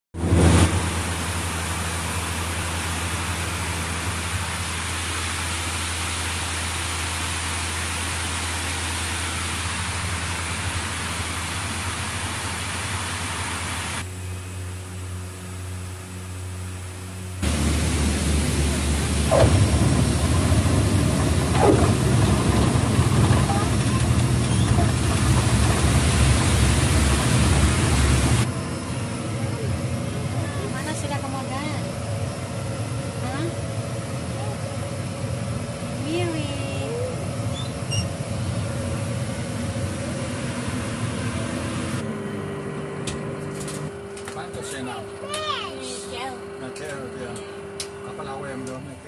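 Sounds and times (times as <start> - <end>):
propeller plane engine drone: 0.2 - 49.0
cabin rushing noise: 17.4 - 28.5.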